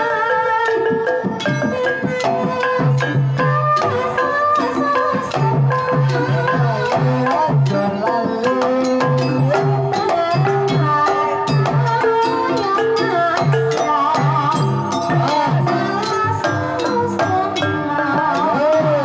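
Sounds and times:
gamelan ensemble playing: 0.0 - 19.0.

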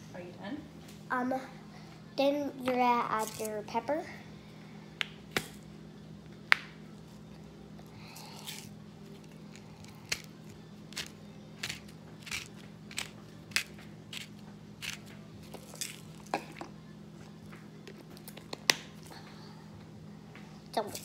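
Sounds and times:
pepper grinder crunching: 3.2 - 3.5, 7.9 - 16.7.

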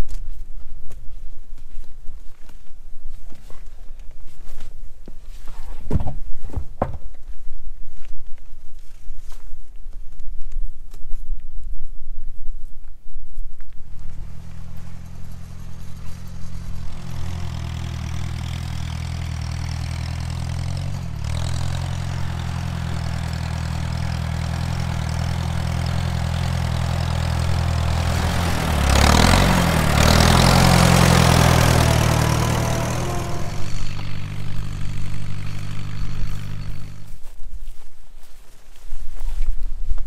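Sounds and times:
tractor engine running: 13.9 - 37.4.

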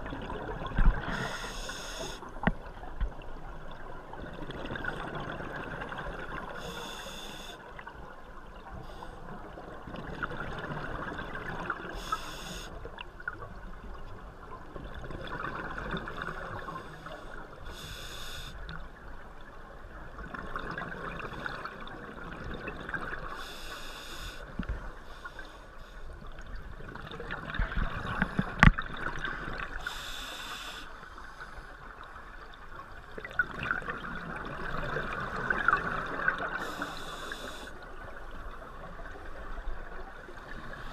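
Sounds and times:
regulator breathing hiss: 1.1 - 2.3, 6.6 - 7.6, 12.0 - 12.8, 16.8 - 18.6, 23.3 - 24.5, 29.8 - 31.0, 36.6 - 37.8.

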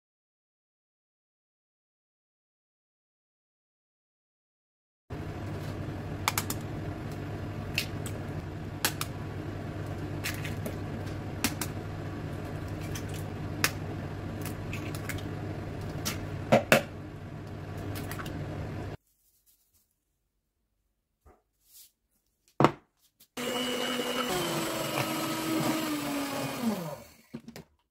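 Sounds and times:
steady low hum: 5.1 - 19.0.

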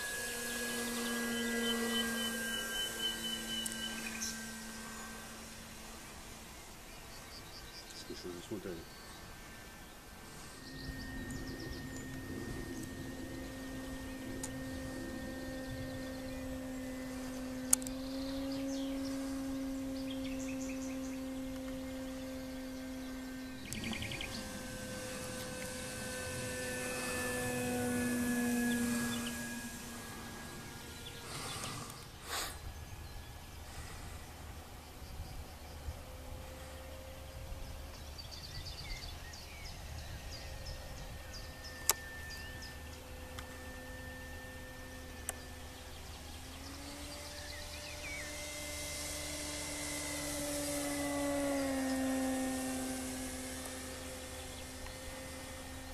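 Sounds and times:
small bird chirping: 0.0 - 36.2, 36.8 - 55.9
low wind rumble: 0.0 - 55.9
model airplane motor humming: 0.0 - 55.9
sharp click: 17.7 - 18.0.

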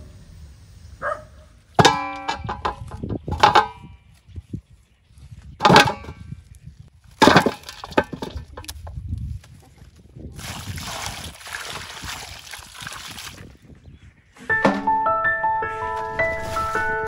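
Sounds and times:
metal basin ringing: 1.8 - 3.8
heavy corms knocking into metal basin: 1.8 - 3.9, 5.6 - 6.2, 7.2 - 9.0.

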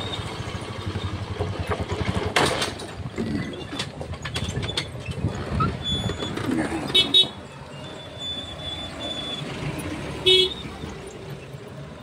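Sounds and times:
motorcycle engine running: 0.0 - 3.2.

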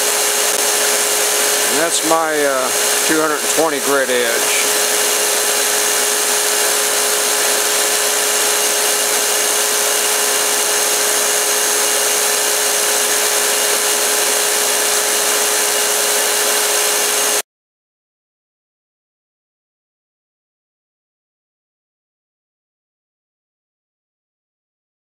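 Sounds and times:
belt grinder whirring: 0.0 - 17.4.

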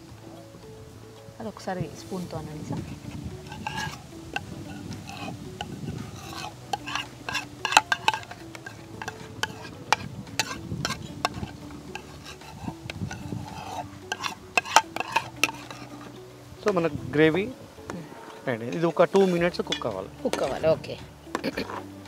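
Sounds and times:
light sizzle: 0.0 - 22.0
spoon scraping a cooking pan: 2.7 - 16.8, 18.0 - 20.7.

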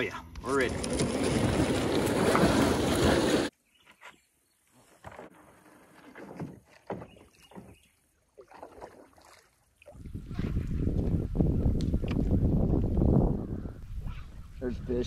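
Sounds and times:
kayak paddle splashing water: 0.7 - 3.5, 5.1 - 11.0.

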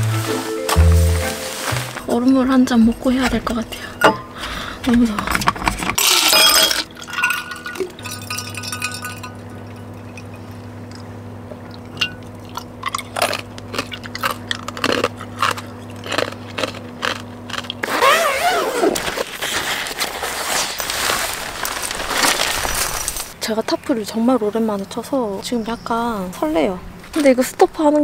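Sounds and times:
rustling and handling noise: 0.0 - 3.6, 17.9 - 23.4
steady low hum: 0.0 - 28.0
ice cubes clinking in cup: 6.0 - 10.4.

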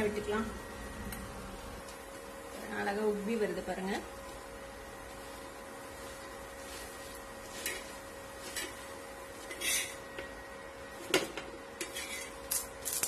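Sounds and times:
faint hum: 0.0 - 13.0
spatula scraping griddle: 7.4 - 10.1, 11.8 - 12.6.

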